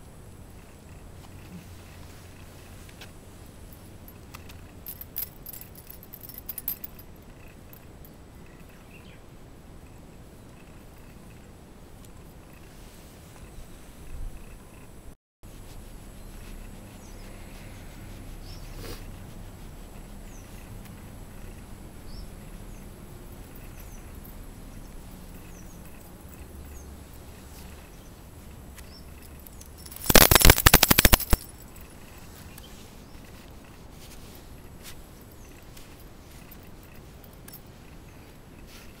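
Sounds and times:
faint outdoor background: 0.0s - 39.0s
crackling rustle on microphone: 0.2s - 7.8s, 10.5s - 39.0s.

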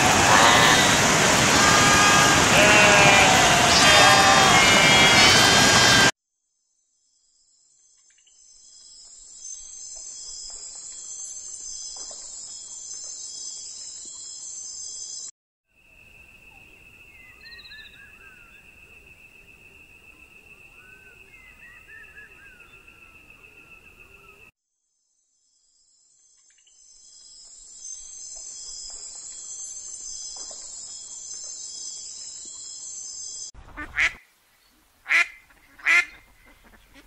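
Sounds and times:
loud animal call: 0.0s - 6.1s.

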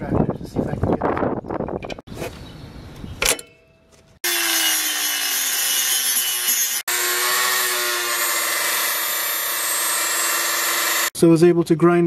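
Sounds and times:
rotary tool grinding bolt: 4.2s - 11.2s.

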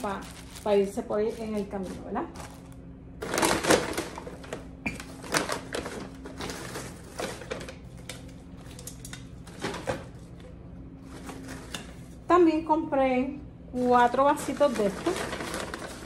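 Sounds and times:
paper bag rustling: 0.0s - 7.8s, 11.0s - 12.1s, 13.8s - 16.0s
wrapping paper crinkling: 0.0s - 10.4s, 14.4s - 16.0s.

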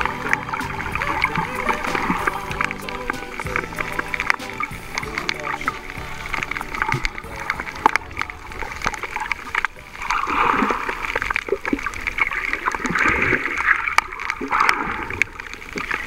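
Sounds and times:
sharp underwater clicks: 0.0s - 16.0s
water sloshing underwater: 0.0s - 16.0s.

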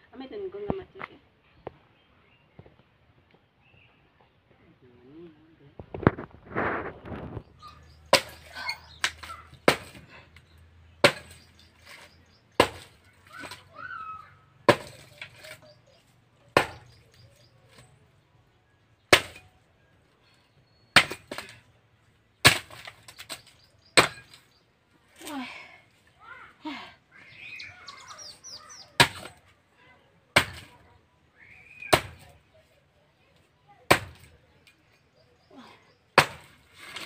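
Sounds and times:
axe chopping firewood: 6.0s - 18.0s, 19.0s - 19.6s, 20.9s - 21.7s, 22.4s - 24.5s, 28.2s - 29.5s, 30.3s - 30.9s, 31.7s - 32.5s, 33.8s - 34.6s, 36.1s - 37.0s.

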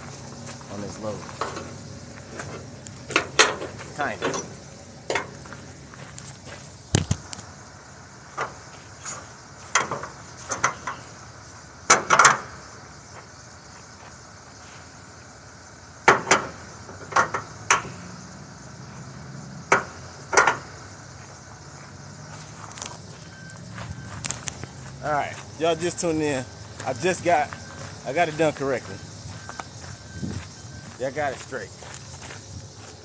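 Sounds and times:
strap hardware clanking on metal: 2.5s - 5.4s, 8.4s - 11.0s.

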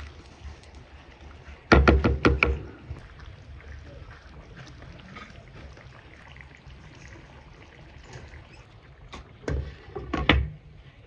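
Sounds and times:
sharp knocks: 1.7s - 2.6s.

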